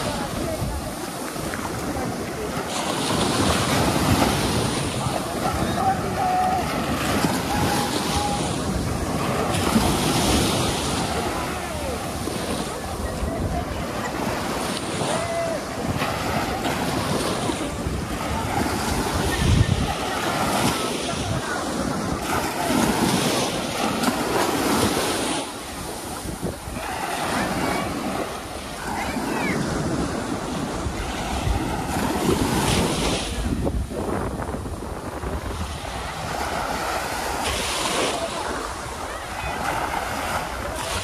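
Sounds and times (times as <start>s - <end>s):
ocean waves washing onto beach: 0.0s - 41.0s
wind rumbling on microphone: 0.0s - 41.0s.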